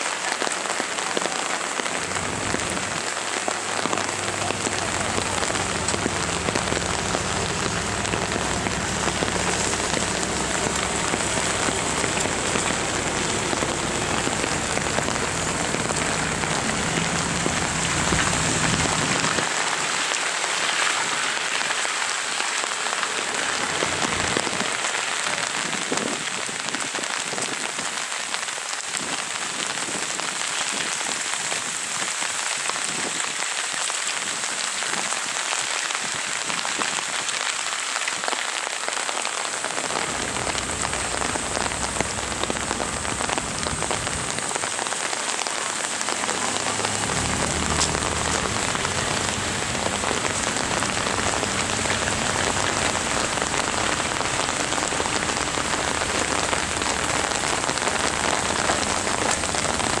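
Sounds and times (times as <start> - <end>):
heavy rain on wet road: 0.0 - 60.0
low rumble: 2.1 - 19.4, 39.9 - 44.4.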